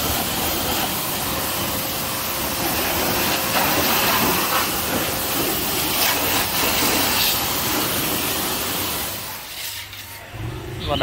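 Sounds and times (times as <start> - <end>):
pressure washer spraying water: 0.0 - 10.5.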